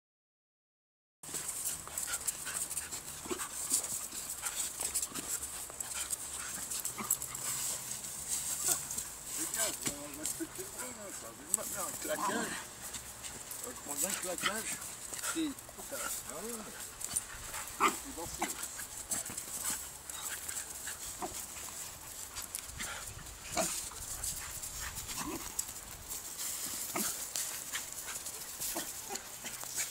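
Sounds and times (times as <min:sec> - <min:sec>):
dogs yipping: 0:01.3 - 0:09.7, 0:12.1 - 0:29.9
scuffling steps on dirt: 0:01.3 - 0:29.9
dogs whimpering: 0:11.9 - 0:12.7.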